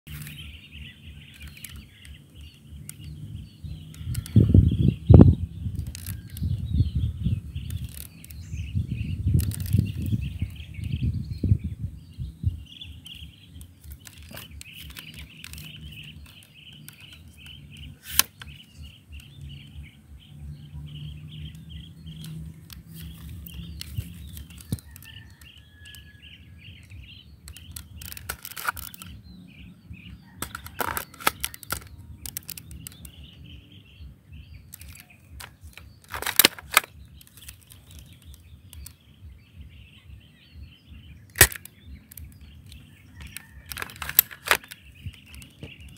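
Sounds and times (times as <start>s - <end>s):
low wind rumble: 0.1s - 45.9s
airsoft rifle clicks and snaps: 1.3s - 4.4s, 5.7s - 6.5s, 7.6s - 8.6s, 9.4s - 10.6s, 13.0s - 19.6s, 21.4s - 26.1s, 26.8s - 29.2s, 30.2s - 33.2s, 34.7s - 39.0s, 41.3s - 45.9s.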